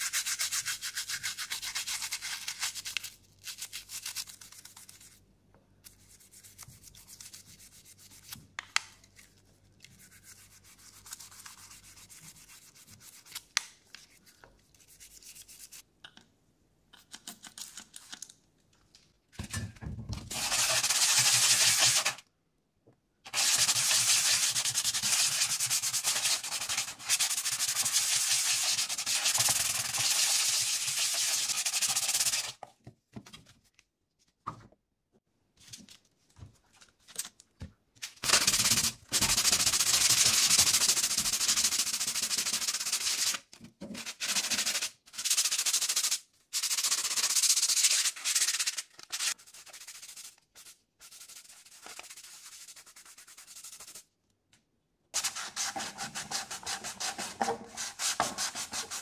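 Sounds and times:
sandpaper scratching on casing: 20.3s - 22.2s, 23.3s - 32.5s, 44.0s - 54.0s, 55.2s - 59.0s.

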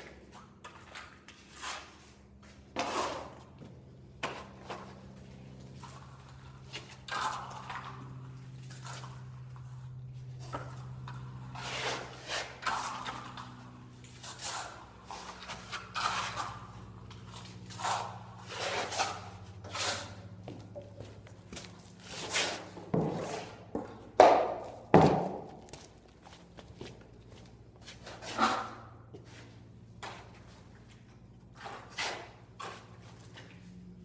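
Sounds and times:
trowel scraping plaster: 0.0s - 5.0s, 5.7s - 20.3s, 22.1s - 23.8s, 31.5s - 33.5s.

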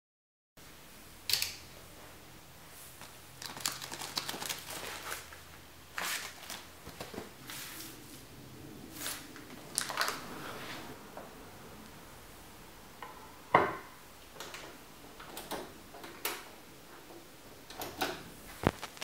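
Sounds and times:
plastic sleeves rustling: 2.8s - 8.0s, 9.0s - 11.0s, 18.4s - 19.0s.

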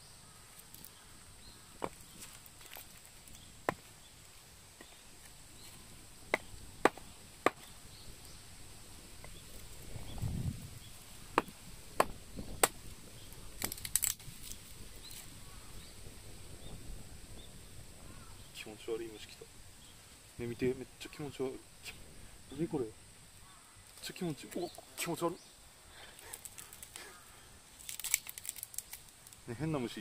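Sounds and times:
faint outdoor background noise: 0.0s - 30.0s
sharp knocks on wood: 6.3s - 7.7s, 11.4s - 12.8s.

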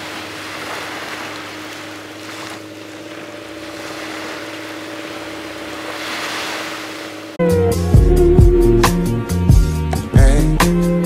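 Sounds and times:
small waves washing on beach: 0.0s - 7.4s.

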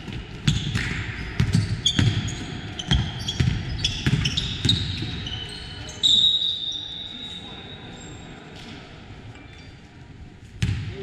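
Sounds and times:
basketball bouncing on court: 0.0s - 5.4s, 10.6s - 11.0s
sneakers squeaking: 0.0s - 8.5s.

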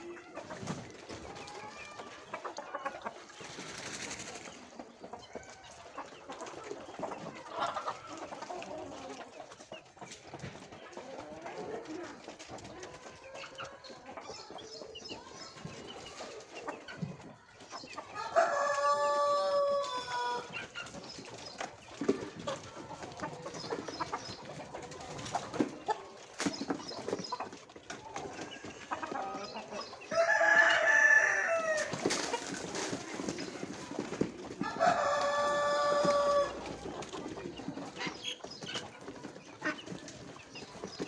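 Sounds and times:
rooster crowing: 30.1s - 31.9s, 34.6s - 36.6s.

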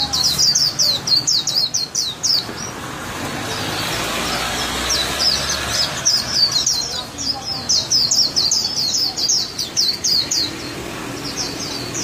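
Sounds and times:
passing vehicle: 0.0s - 8.6s
bird chirping: 0.0s - 12.0s.

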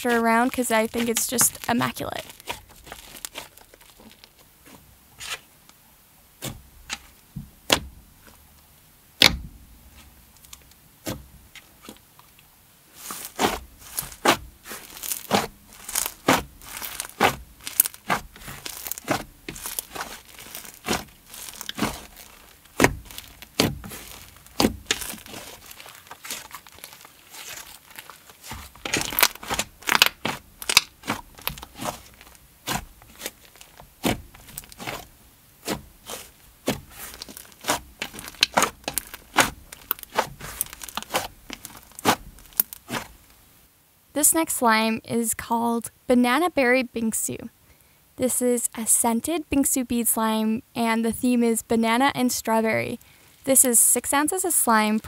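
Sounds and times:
slime popping and crackling: 0.0s - 4.5s, 13.0s - 43.2s.

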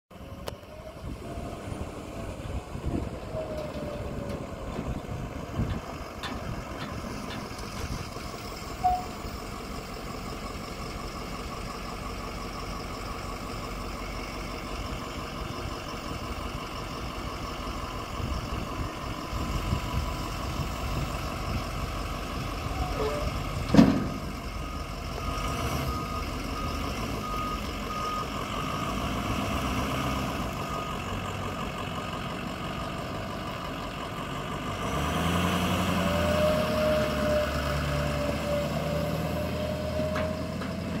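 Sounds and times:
truck engine running: 0.1s - 41.0s
backup alarm beeps: 8.8s - 9.3s, 24.1s - 28.9s.

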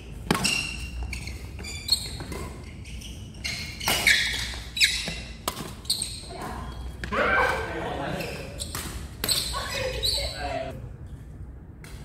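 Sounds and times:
racket hitting shuttlecock: 0.2s - 1.0s, 3.8s - 7.7s.

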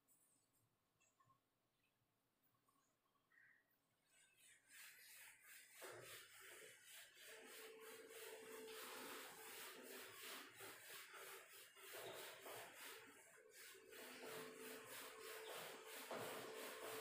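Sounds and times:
duster wiping whiteboard: 4.1s - 17.0s.

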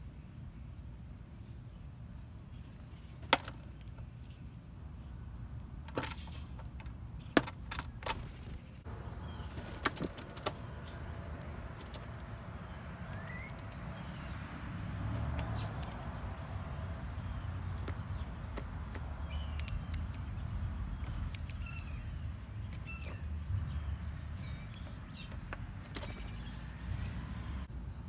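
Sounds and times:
bird wingbeats: 9.4s - 12.2s, 24.7s - 26.8s
sharp taps and clicks: 17.7s - 21.6s.

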